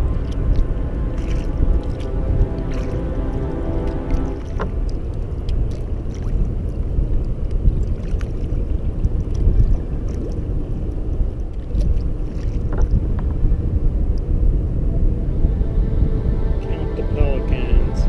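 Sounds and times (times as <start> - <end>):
paddle splashes and drips: 0.0 - 13.4
low wind rumble on microphone: 0.0 - 18.0
water lapping at hull: 0.0 - 18.0.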